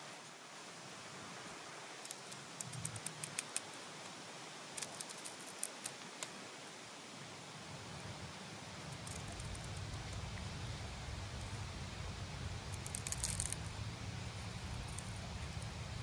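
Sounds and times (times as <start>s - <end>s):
steady hiss: 0.0s - 16.0s
knife whittling wood clicks: 2.0s - 3.8s, 4.8s - 6.4s.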